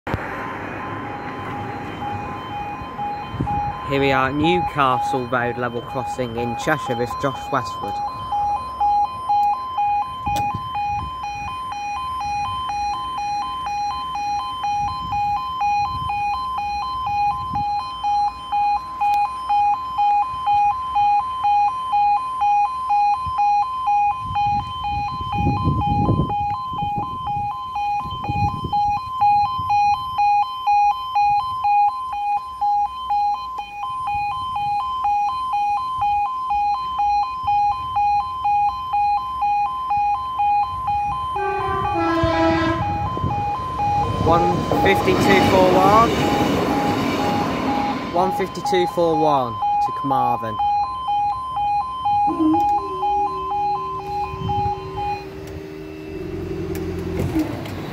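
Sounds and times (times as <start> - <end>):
two-tone electronic alarm: 0.3 - 57.9
low rumble: 52.1 - 57.4.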